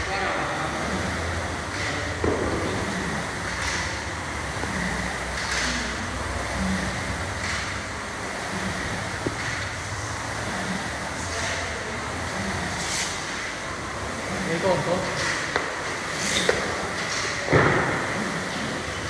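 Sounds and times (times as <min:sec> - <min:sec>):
steady rushing noise: 0:00.0 - 0:19.0
dumbbells thudding on rubber floor: 0:17.5 - 0:18.0.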